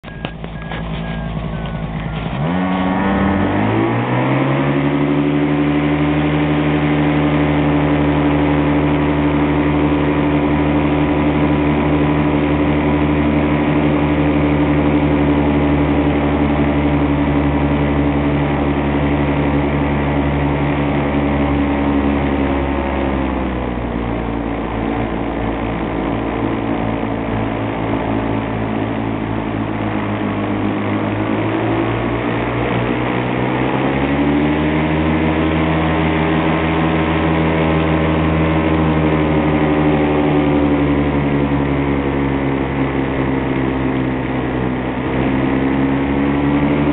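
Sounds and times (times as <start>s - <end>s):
paramotor engine and propeller: 0.0s - 46.9s.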